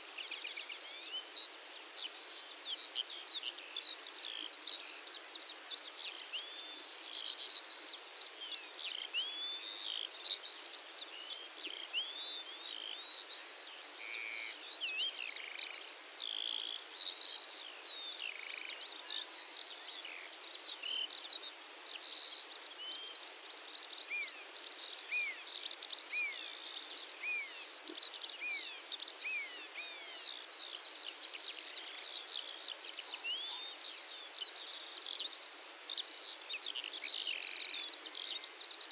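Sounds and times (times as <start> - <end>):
songbirds chirping and trilling: 0.0 - 38.9
steady background hiss: 0.0 - 38.9.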